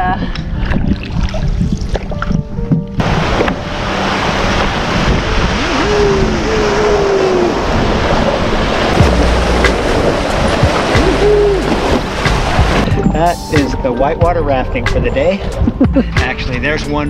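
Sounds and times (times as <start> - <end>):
wind buffeting microphone: 0.0 - 16.1
whitewater rushing: 3.0 - 13.8.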